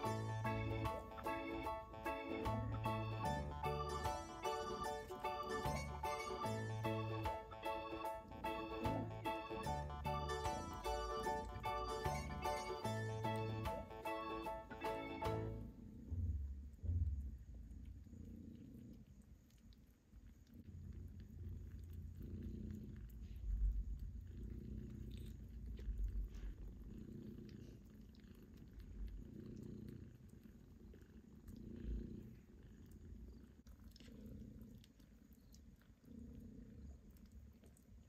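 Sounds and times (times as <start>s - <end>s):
cat purring: 0.0s - 38.0s
faint small ticks: 17.8s - 38.0s.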